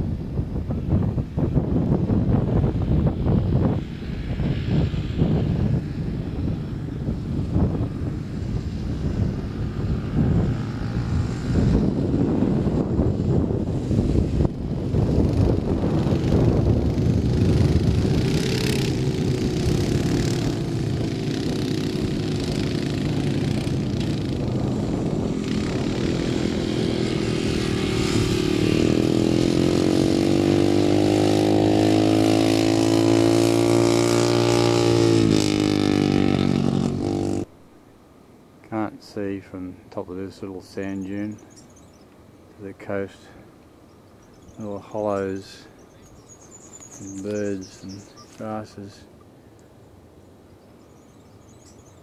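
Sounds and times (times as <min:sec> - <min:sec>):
quad bike engines running: 0:03.2 - 0:37.5, 0:44.2 - 0:49.0.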